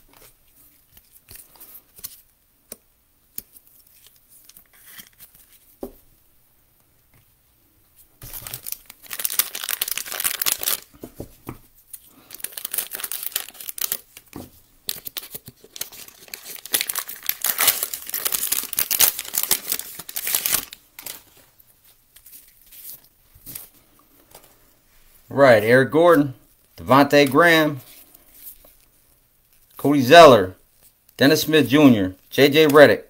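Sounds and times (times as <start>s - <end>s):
plastic wrapper crinkling: 8.2s - 11.0s, 11.9s - 24.5s.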